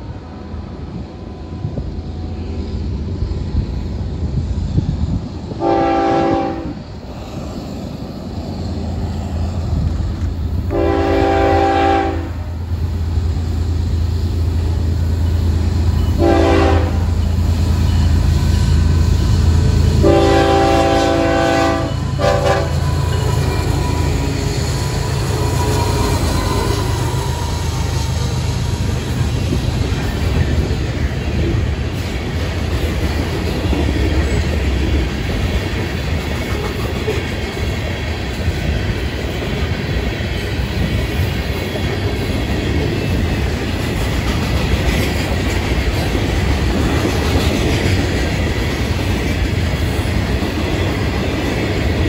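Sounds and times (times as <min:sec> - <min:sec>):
train engines and wheels rumbling: 0:00.0 - 0:52.0
locomotive air horn: 0:05.6 - 0:06.8, 0:10.7 - 0:12.5, 0:16.2 - 0:17.1, 0:20.0 - 0:23.9.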